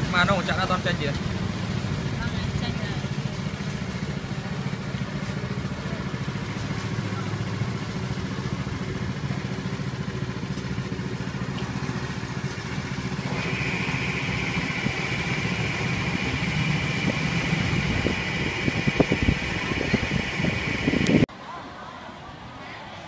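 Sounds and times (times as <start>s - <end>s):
small engine idling: 0.0s - 21.3s
steady high tone: 13.2s - 21.3s.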